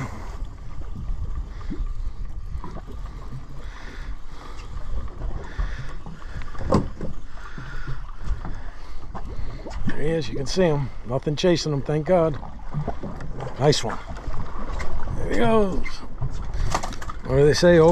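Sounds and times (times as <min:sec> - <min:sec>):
water slapping against boat hull: 0:01.0 - 0:10.7, 0:11.9 - 0:17.9.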